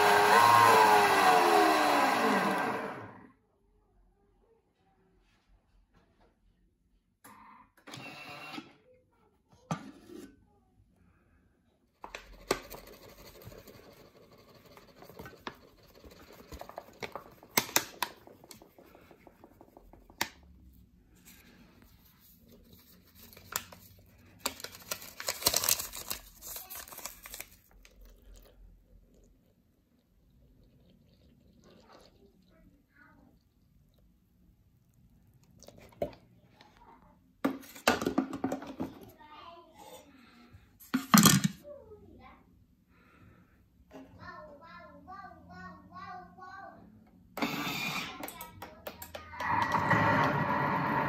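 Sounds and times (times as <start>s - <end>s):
paper bag rustling and crinkling: 23.2s - 27.9s.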